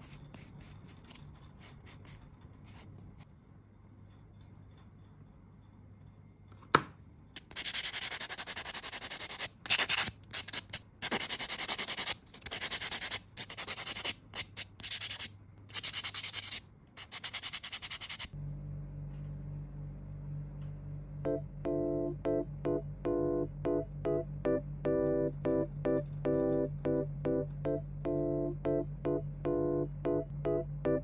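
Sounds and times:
nail buffer rubbing fingernail: 0:00.0 - 0:03.0
soft music: 0:21.2 - 0:31.0.

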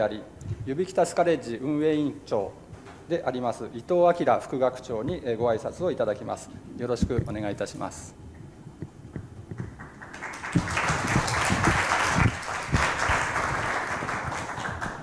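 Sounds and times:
dull thumps: 0:07.0 - 0:07.5, 0:08.8 - 0:09.8
audience applauding: 0:09.6 - 0:15.0.

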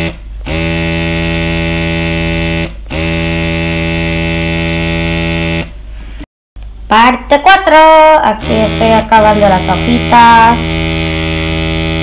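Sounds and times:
airbrush air pump buzzing: 0:00.0 - 0:05.8, 0:08.4 - 0:12.0.

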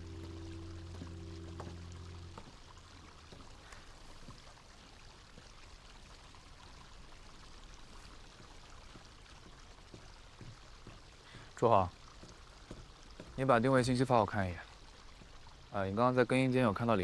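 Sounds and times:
low held music chord: 0:00.0 - 0:02.8
faint steady hiss: 0:00.0 - 0:17.0.

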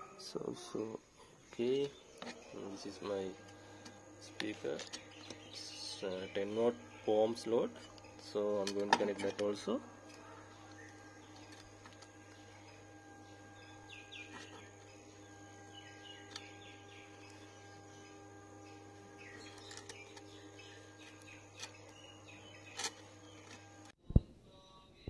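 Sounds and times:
faint steady hum: 0:00.0 - 0:25.0
speaker wires clicking: 0:06.3 - 0:24.2.

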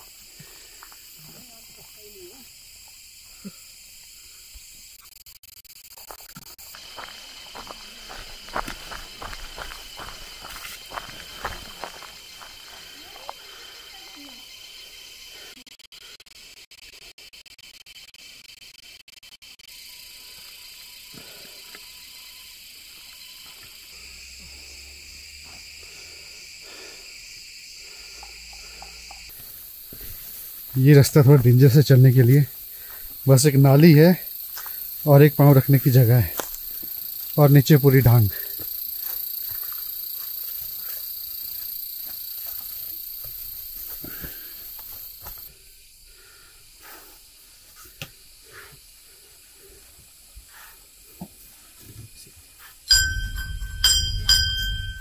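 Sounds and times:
forest insects droning: 0:00.0 - 0:55.0
faint ticks and scuffs: 0:04.0 - 0:15.7, 0:16.4 - 0:33.3, 0:34.2 - 0:45.6, 0:46.8 - 0:52.9.

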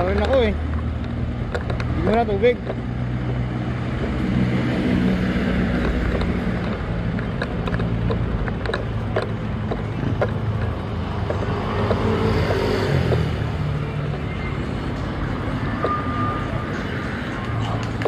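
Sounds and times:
road traffic engines: 0:00.0 - 0:18.0
light clicks and rattles: 0:05.8 - 0:12.0.

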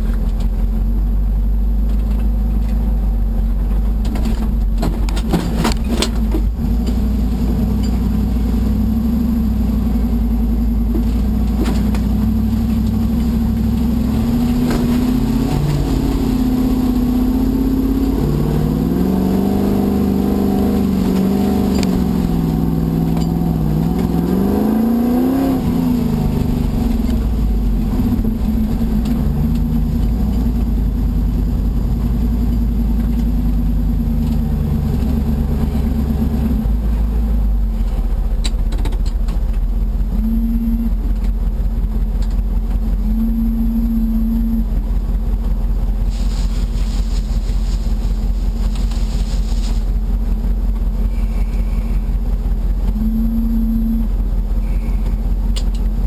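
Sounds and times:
off-roader engine revving: 0:00.0 - 0:56.0
burst of hiss: 0:46.1 - 0:48.0.

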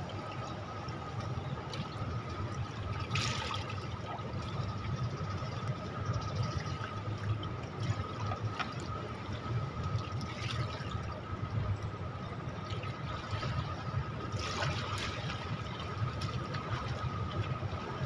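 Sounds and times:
low steady hum: 0:00.0 - 0:18.0
pool water sloshing: 0:00.0 - 0:18.0
swimmer splash: 0:13.0 - 0:17.7.

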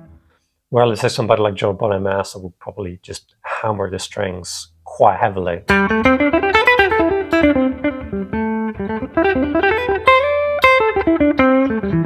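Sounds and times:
electric guitar blues lick: 0:05.7 - 0:12.0.

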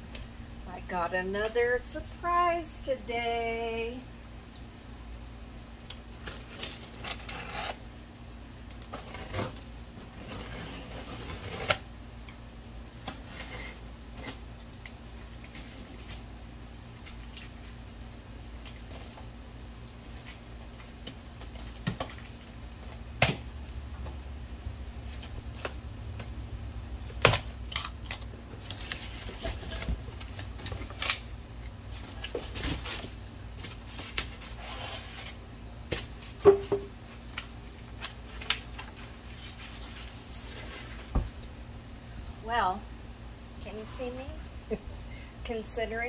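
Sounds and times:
packing tape pulled off: 0:06.2 - 0:07.8, 0:32.2 - 0:35.4
cardboard rustling and scraping: 0:08.8 - 0:11.9, 0:27.6 - 0:31.2, 0:31.9 - 0:35.4, 0:36.0 - 0:41.4.

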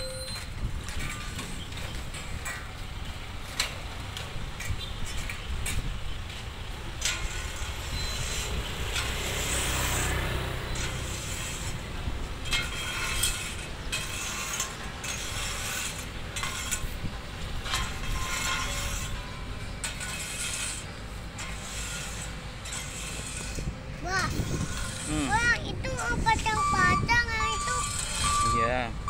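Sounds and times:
metallic clanks and knocks: 0:00.0 - 0:09.3, 0:10.8 - 0:23.8
diesel machinery rumbling: 0:00.0 - 0:29.0.

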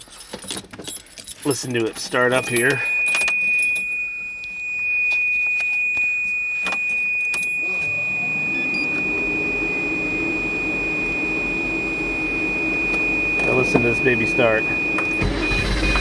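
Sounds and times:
keys jangling: 0:00.0 - 0:03.9
thin steady high tone: 0:00.1 - 0:16.0
car engine starting and idling: 0:07.6 - 0:16.0.

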